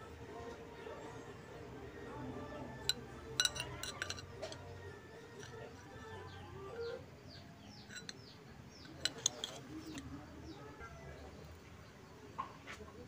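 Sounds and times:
steel strips clinking: 2.8s - 4.6s, 5.4s - 6.2s, 7.8s - 8.2s, 8.8s - 10.1s
bird chirping: 5.6s - 12.2s.

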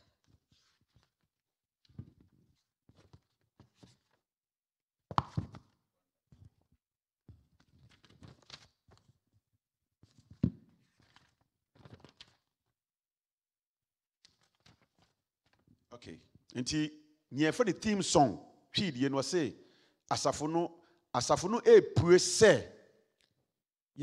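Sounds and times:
paper rustling: 0.2s - 1.2s, 1.9s - 4.2s, 7.5s - 9.2s, 10.0s - 12.5s, 14.3s - 15.8s.

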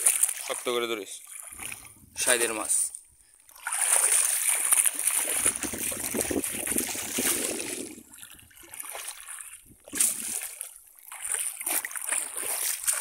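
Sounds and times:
shallow water splashing: 0.0s - 13.0s.

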